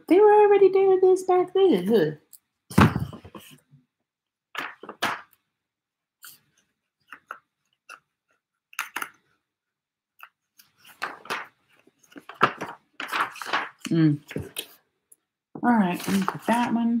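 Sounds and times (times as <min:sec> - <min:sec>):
magazine pages rustling: 0:10.5 - 0:14.8, 0:15.8 - 0:17.0.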